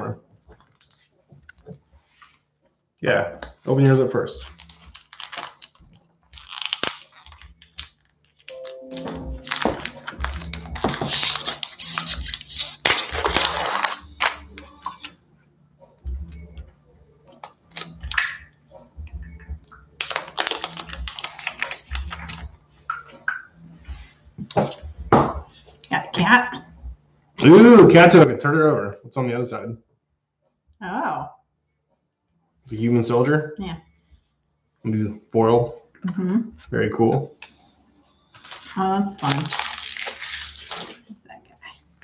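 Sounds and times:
foil wrapper crinkling and tearing: 0:04.2 - 0:15.2, 0:17.4 - 0:18.4, 0:20.0 - 0:22.4, 0:38.3 - 0:41.1.

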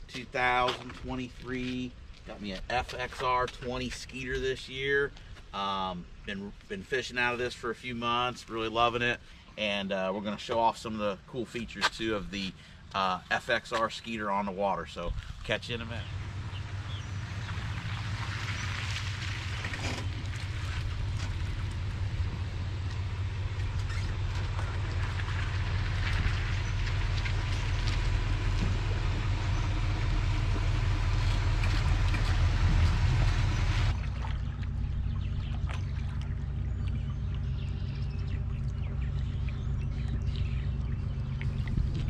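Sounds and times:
outboard motor idling: 0:14.9 - 0:42.0
truck engine idling: 0:15.1 - 0:42.0.

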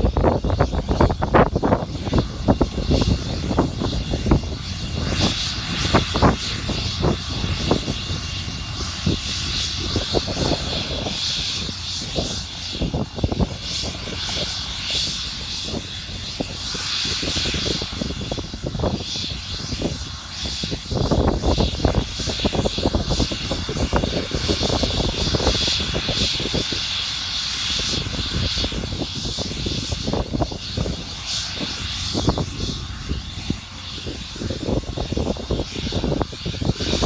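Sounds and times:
helicopter turbine engines whining: 0:00.0 - 0:37.0.

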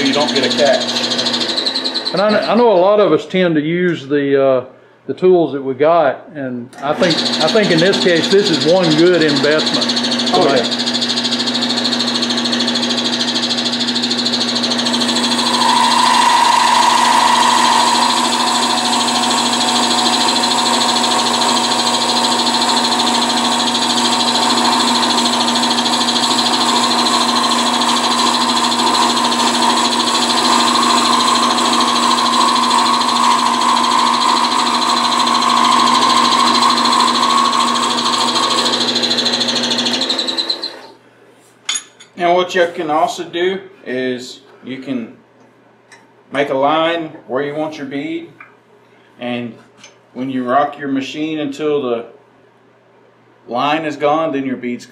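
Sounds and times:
wood lathe running: 0:00.0 - 0:02.7, 0:06.8 - 0:41.0
tool cutting spinning wood: 0:00.0 - 0:02.8, 0:06.8 - 0:41.0.

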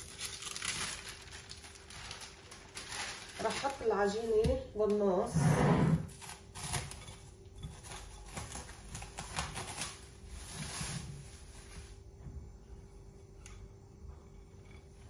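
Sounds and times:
parchment paper rustling: 0:00.0 - 0:04.7, 0:06.1 - 0:12.0
faint steady hum: 0:00.0 - 0:15.0.

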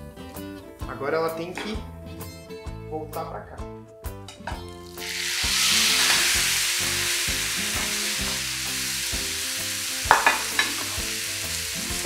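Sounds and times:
potato sizzling in a frying pan: 0:04.7 - 0:12.0.

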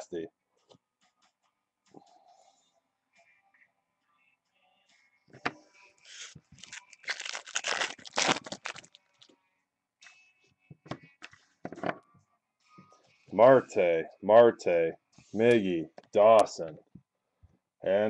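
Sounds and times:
packaging tearing and crinkling: 0:06.1 - 0:09.0.

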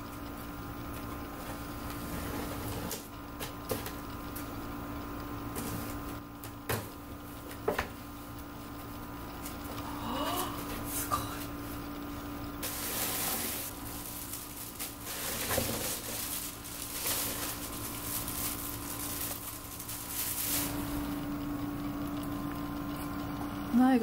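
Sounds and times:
plastic bags and paper crinkling: 0:12.6 - 0:21.0.

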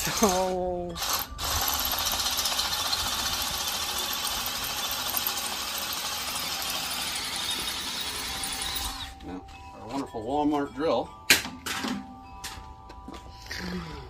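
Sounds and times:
electric drill boring into steel: 0:01.0 - 0:09.2.

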